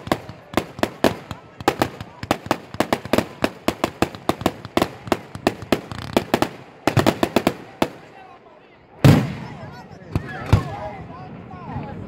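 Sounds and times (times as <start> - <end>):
fireworks bangs: 0.0 - 8.2, 9.0 - 10.8.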